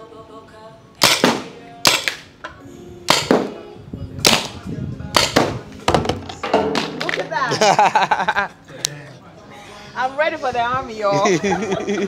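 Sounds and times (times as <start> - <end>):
background music: 0.0 - 12.0
paintball markers firing: 1.0 - 2.3, 3.1 - 3.5, 4.3 - 4.6, 5.2 - 5.6.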